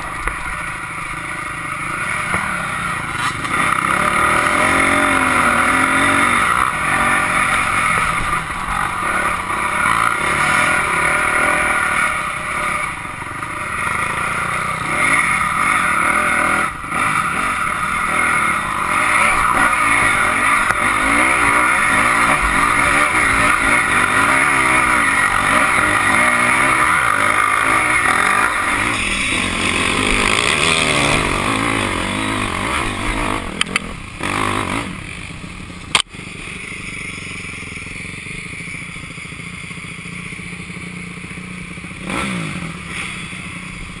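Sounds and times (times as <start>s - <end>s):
dirt bike engine revving: 0.0s - 44.0s
clicks: 33.6s - 33.9s, 35.9s - 36.1s.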